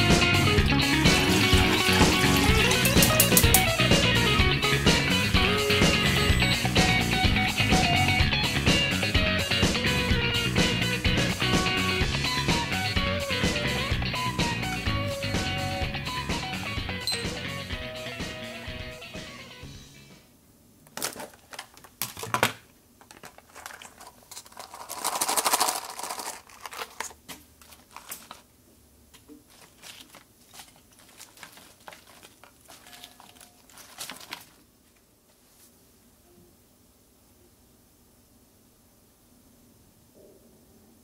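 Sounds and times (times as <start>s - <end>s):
guitar instrumental music: 0.0s - 20.0s
plastic lid crackling: 20.9s - 28.5s, 29.2s - 34.7s.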